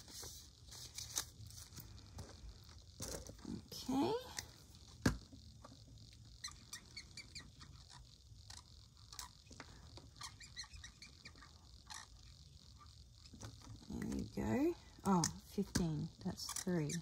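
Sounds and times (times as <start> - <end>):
marker squeaking on paper: 6.3 - 14.2, 16.4 - 17.0.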